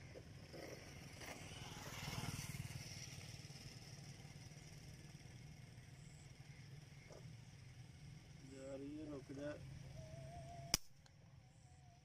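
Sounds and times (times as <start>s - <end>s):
faint vehicle passing: 0.0s - 10.7s
low steady hum: 2.8s - 12.0s.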